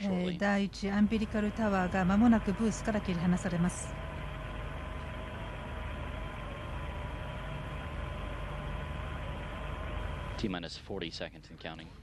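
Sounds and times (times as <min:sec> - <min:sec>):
faint steady hums: 0:00.0 - 0:12.0
low rumble: 0:00.9 - 0:10.5
steady rushing noise: 0:01.0 - 0:10.5.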